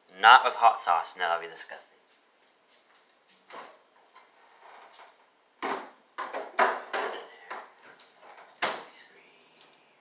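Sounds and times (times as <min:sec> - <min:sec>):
items knocking and clattering: 0:03.4 - 0:08.9.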